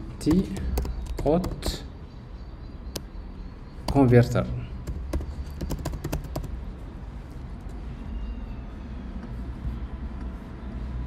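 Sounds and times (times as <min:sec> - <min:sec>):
computer keyboard typing: 0:00.2 - 0:01.8, 0:04.8 - 0:06.6.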